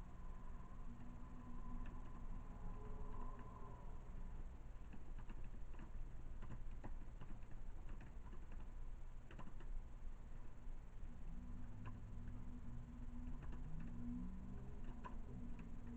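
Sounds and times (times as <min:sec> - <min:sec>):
steady low hum: 0:00.0 - 0:15.9
typing on computer keyboard: 0:01.0 - 0:02.2, 0:04.7 - 0:09.8, 0:11.8 - 0:12.4, 0:13.1 - 0:15.9.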